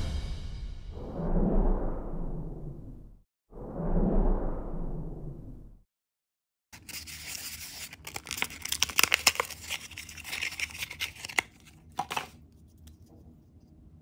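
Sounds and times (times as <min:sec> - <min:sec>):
plastic wrapper tearing and crinkling: 0:06.8 - 0:12.4.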